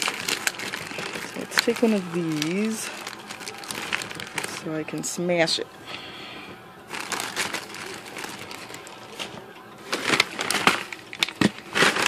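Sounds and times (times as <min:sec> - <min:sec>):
plastic bags crinkling: 0:00.0 - 0:12.0.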